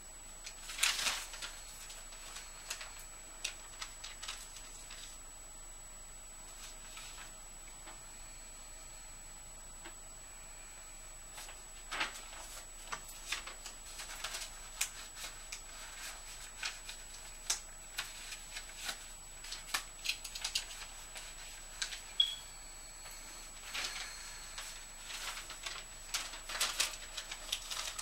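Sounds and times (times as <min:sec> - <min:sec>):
faint high steady whine: 0:00.0 - 0:28.0
paper rustling and crinkling: 0:00.4 - 0:05.2, 0:06.5 - 0:08.0, 0:11.3 - 0:22.2, 0:23.1 - 0:28.0
short high blip: 0:22.2 - 0:22.5.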